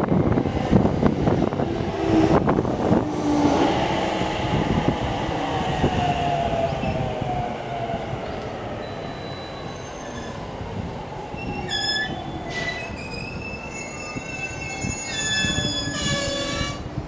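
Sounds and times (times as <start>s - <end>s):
train rumble: 0.0s - 17.0s
wheel and brake squeal: 8.8s - 10.4s, 11.4s - 16.8s.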